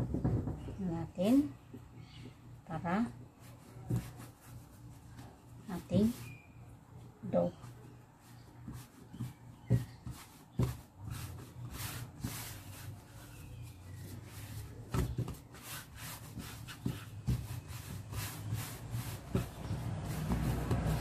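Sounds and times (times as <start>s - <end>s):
hands kneading dough: 0.0s - 21.0s
dough thumping on table: 3.8s - 4.3s, 8.6s - 12.4s, 14.4s - 21.0s.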